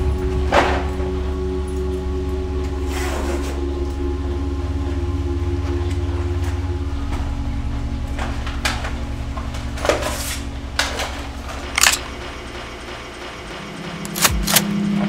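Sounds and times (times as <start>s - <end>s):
low pulsing music: 0.0s - 15.0s
bag and shotgun handling clicks: 11.8s - 12.0s.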